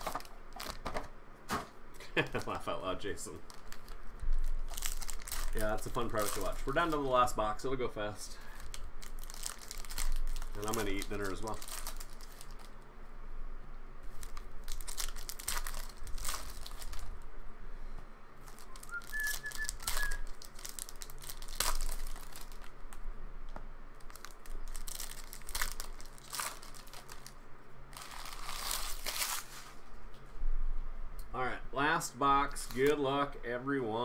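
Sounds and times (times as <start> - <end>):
foil wrappers crinkling and tearing: 0.0 - 1.0, 2.2 - 12.8, 14.0 - 17.2, 18.4 - 23.0, 23.9 - 29.8, 32.5 - 33.0.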